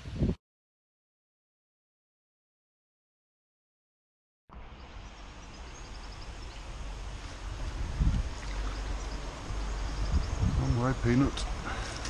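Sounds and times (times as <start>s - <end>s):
water sloshing and lapping: 7.1s - 9.3s.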